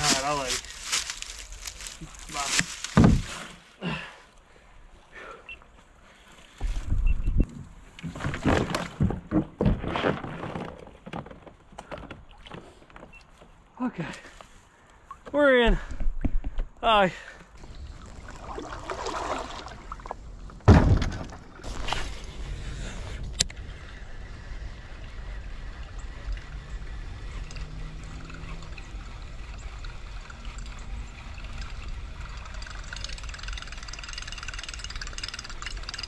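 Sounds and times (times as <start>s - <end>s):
creek water trickling: 0.0s - 6.6s, 17.0s - 36.0s
knocks and splashes: 2.5s - 3.6s, 8.0s - 13.1s, 17.6s - 21.7s.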